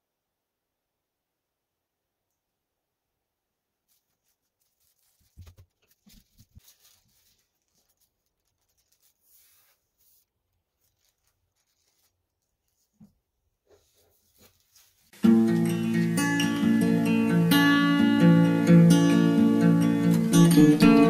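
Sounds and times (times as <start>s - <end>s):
tissue paper crinkling: 3.8s - 15.7s.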